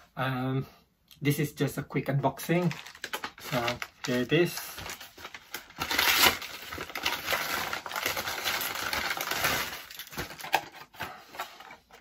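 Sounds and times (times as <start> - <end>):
paper envelope crinkling: 2.5 - 12.0.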